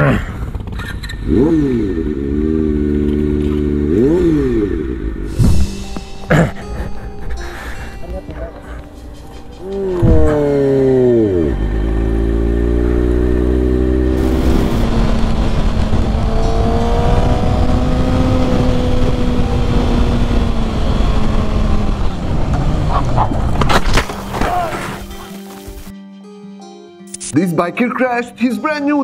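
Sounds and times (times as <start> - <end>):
motorcycle engine running: 10.1 - 23.6.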